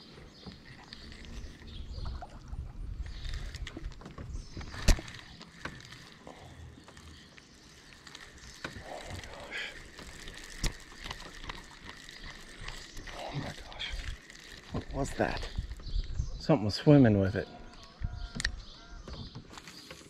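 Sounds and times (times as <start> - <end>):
fishing reel cranking with clicks: 4.6 - 15.8.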